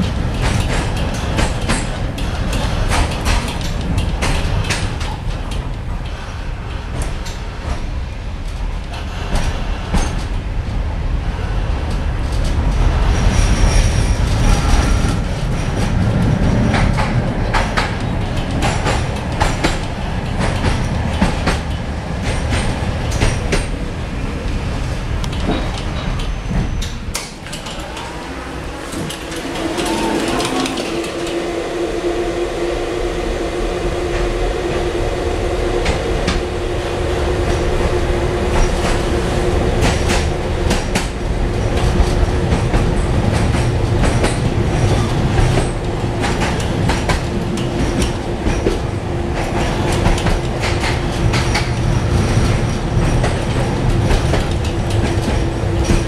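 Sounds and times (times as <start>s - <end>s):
tram rumbling over track: 0.0s - 56.0s
wheels clicking on rails: 0.0s - 56.0s
steady whine: 27.3s - 40.2s.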